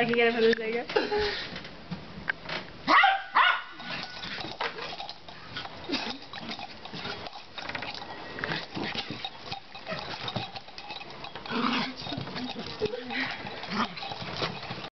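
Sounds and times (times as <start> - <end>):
dog barking: 2.9 - 3.8
dog growling and snarling: 3.8 - 14.9.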